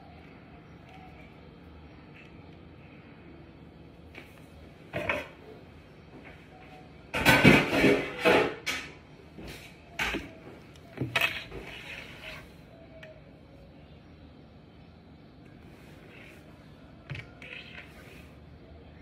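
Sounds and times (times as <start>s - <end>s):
kitchen objects knocking and clattering: 7.1s - 9.0s.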